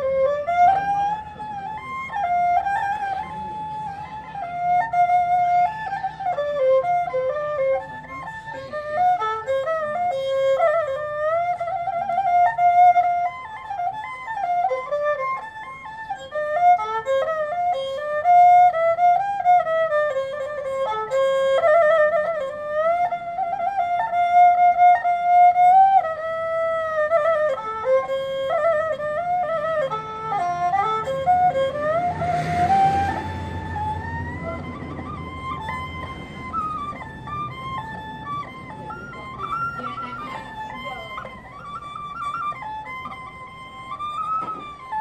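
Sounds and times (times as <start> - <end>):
bowed fiddle melody: 0.0 - 45.0.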